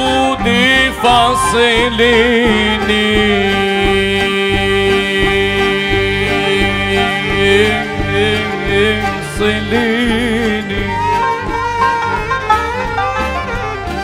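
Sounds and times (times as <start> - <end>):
string instruments over a steady beat: 0.0 - 14.0.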